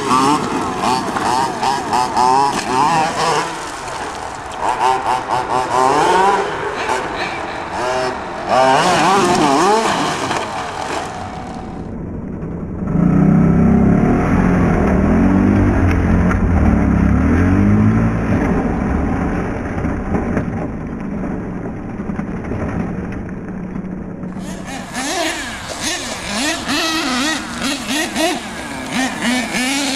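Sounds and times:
deeper engine revving: 0.0 - 21.5, 24.3 - 29.9
toy truck engine revving high: 24.4 - 29.9.

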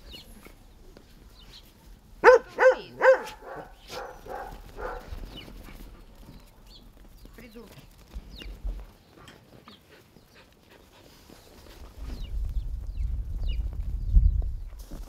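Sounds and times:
dog barking: 2.2 - 5.2
soft dog barks: 2.2 - 5.2.

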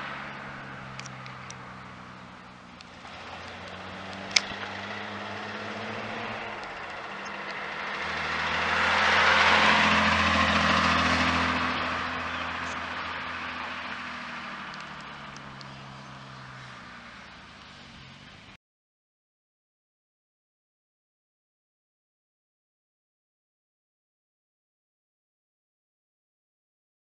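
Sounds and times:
car engine driving past: 0.0 - 18.6.

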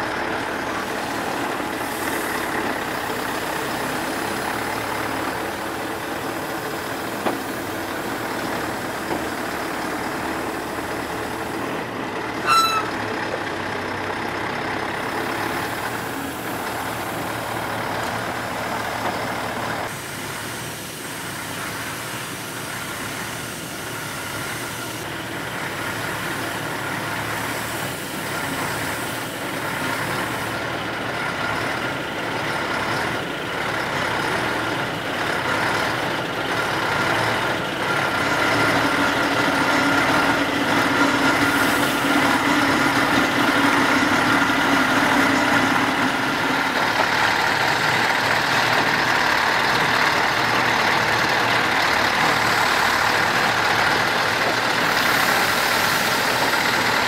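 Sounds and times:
truck diesel engine running: 0.0 - 57.0.

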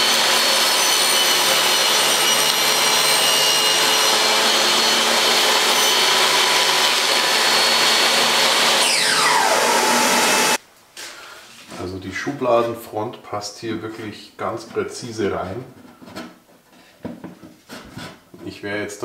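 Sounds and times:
saw motor winding down: 0.0 - 10.6
table saw running: 0.0 - 10.6.

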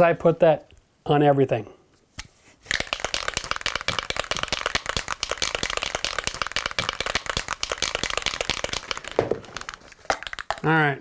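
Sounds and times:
aerosol can ball rattling: 2.6 - 10.7.

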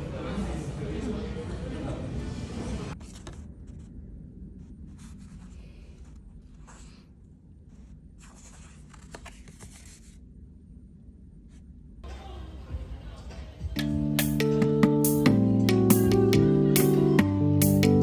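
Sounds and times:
low room hum: 0.0 - 13.8
paper card rustling: 3.0 - 3.9, 7.7 - 10.2.

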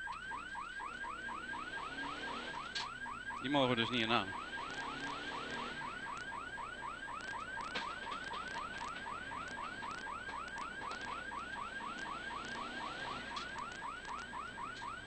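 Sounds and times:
electronic alarm chirping: 0.0 - 15.0
faint clicks and rattles: 6.0 - 12.2.

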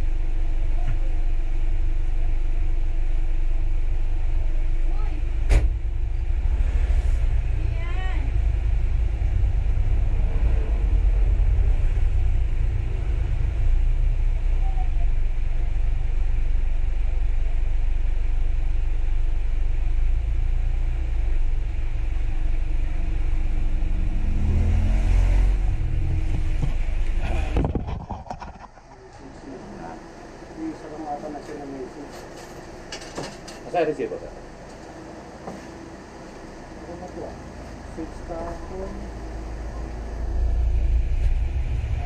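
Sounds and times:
steady low rumble: 0.0 - 31.8, 36.0 - 42.0
rising engine-like tone: 3.2 - 27.6, 37.8 - 42.0.

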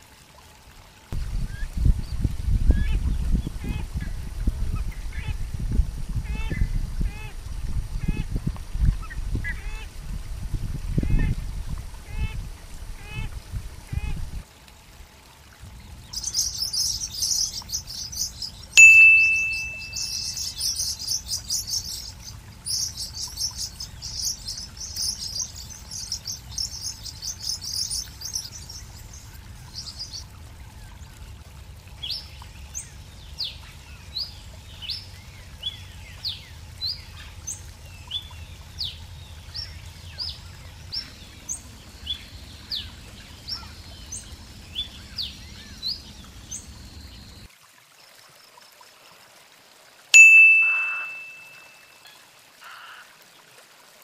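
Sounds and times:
bird whistling song: 16.1 - 29.0, 50.2 - 51.8
low outdoor rumble: 20.9 - 47.5.

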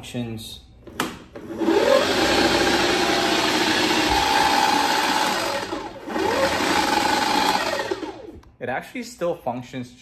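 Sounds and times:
electric motor whining and humming: 1.5 - 8.4.

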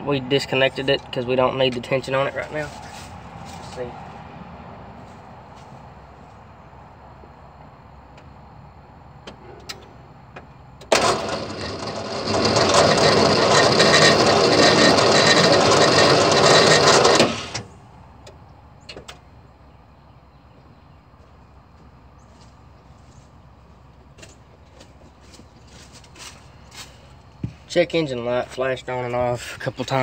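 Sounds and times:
engine starter cranking: 10.8 - 17.8.

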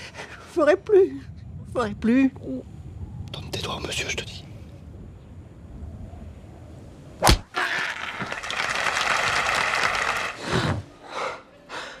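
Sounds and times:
crowd clapping and cheering: 7.9 - 10.4.

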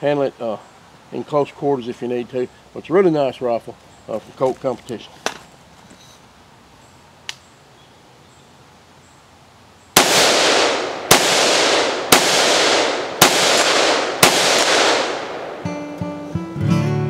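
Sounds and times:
rifle shots echoing: 10.0 - 16.0
acoustic guitar music: 15.6 - 17.0.

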